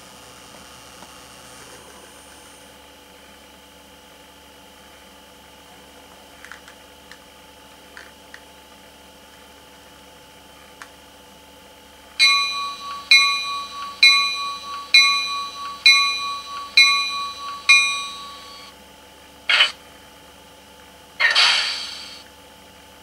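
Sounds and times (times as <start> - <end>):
bell strikes through speaker: 12.2 - 18.7
air release hisses: 21.2 - 22.2.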